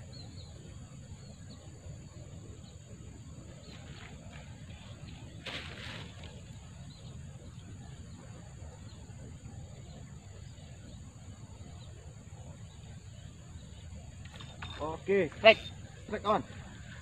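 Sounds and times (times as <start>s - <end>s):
high insect drone: 0.0s - 17.0s.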